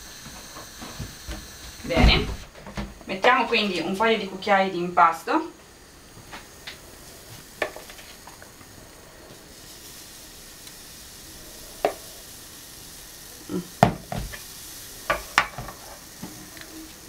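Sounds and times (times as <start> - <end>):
batter sizzling in frying pan: 0.0 - 17.0
spoon knocking on pan: 15.1 - 16.4.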